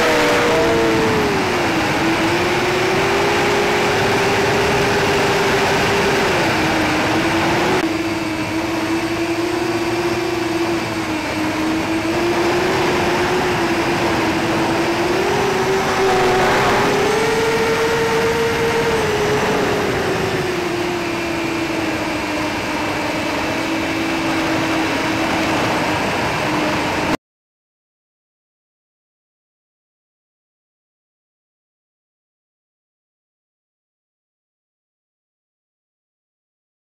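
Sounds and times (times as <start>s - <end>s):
drone motors whining: 0.0s - 27.1s.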